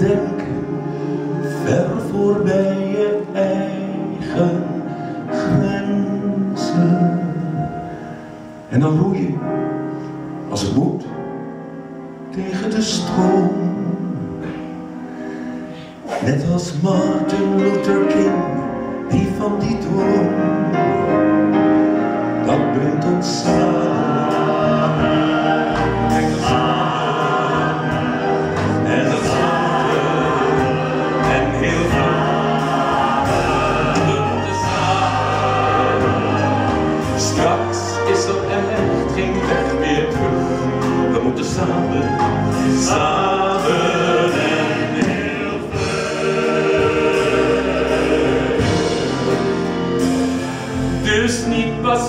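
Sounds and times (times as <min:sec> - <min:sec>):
group of voices singing: 0:00.0 - 0:08.5, 0:22.1 - 0:52.0
live musical accompaniment: 0:00.0 - 0:52.0
steady bass notes: 0:22.7 - 0:52.0.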